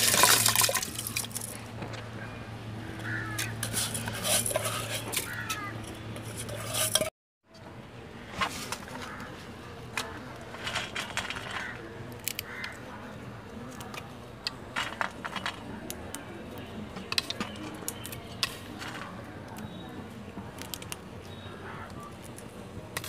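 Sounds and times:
kitchen utensils and dishes clinking: 3.3s - 7.1s.

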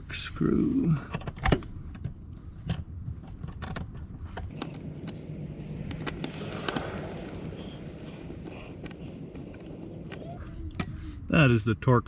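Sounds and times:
steady low rumble: 1.6s - 12.0s.

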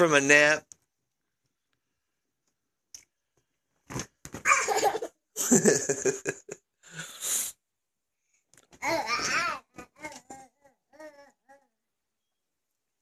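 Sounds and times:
toddler laughing: 4.4s - 5.2s.

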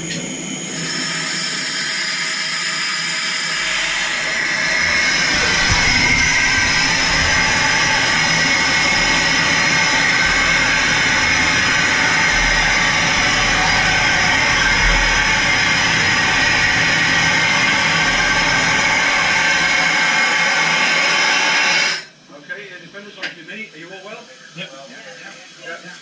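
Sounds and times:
air rushing out of a chamber: 3.4s - 22.1s.

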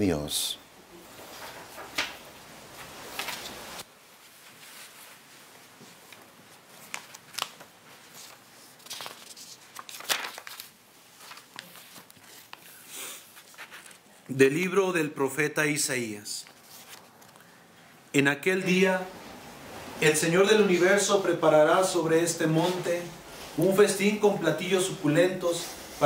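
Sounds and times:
faint background hiss: 0.0s - 26.0s
rustling: 0.9s - 14.2s, 16.4s - 17.6s
soft clicks of handling things: 16.9s - 17.5s.

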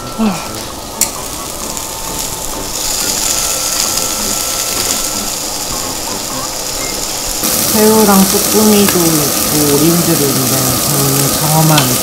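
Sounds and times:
food sizzling on charcoal grill: 0.0s - 12.0s
person huffing: 0.1s - 0.6s.

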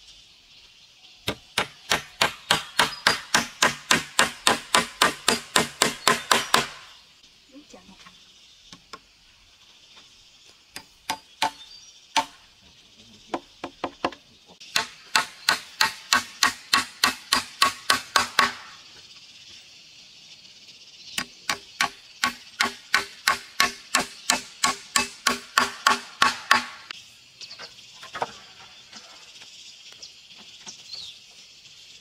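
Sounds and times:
hammer driving nail into wood: 1.3s - 6.8s, 13.7s - 18.6s, 21.5s - 26.8s.

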